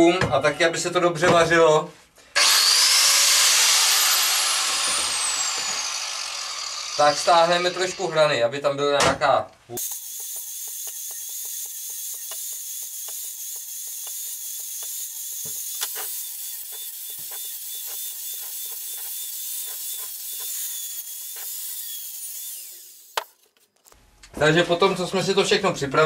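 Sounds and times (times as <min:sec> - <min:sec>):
angle grinder grinding steel: 0:02.4 - 0:08.5, 0:09.8 - 0:23.7.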